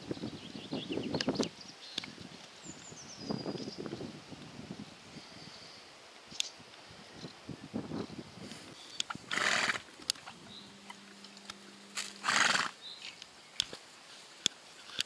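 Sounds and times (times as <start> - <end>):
horse snorting: 9.1 - 12.8
grass being torn and chewed: 10.0 - 15.0.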